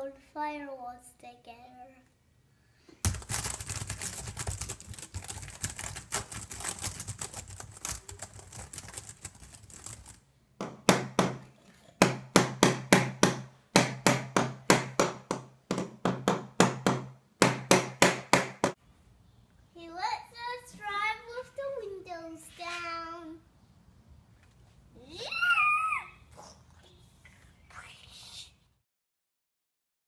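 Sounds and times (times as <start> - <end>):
laptop keyboard clatter: 3.1 - 10.2
hammer striking a board: 10.6 - 18.8.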